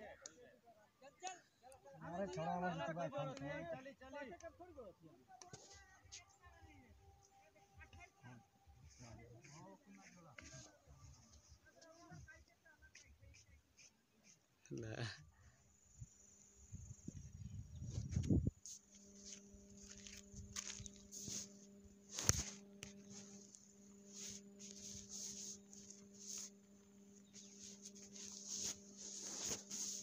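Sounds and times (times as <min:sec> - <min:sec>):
microphone rubbing on cloth: 0:08.8 - 0:14.4, 0:16.7 - 0:30.0
faint steady hum: 0:14.7 - 0:30.0
wind rumble on microphone: 0:16.7 - 0:18.6.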